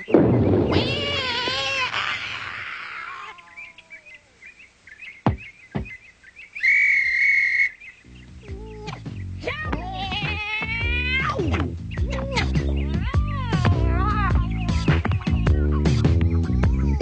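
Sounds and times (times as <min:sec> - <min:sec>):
high bird-like chirps: 0:03.0 - 0:09.5, 0:11.4 - 0:16.6.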